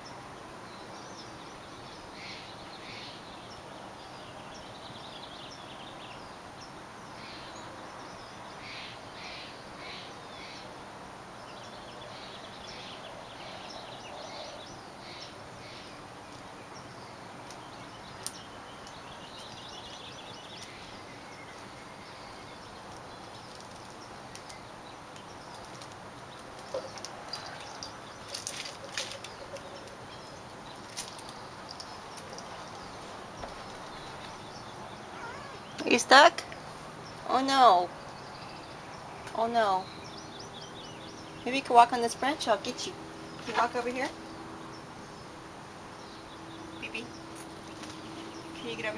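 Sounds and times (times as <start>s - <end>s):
wild birds chirping: 0.0s - 48.9s.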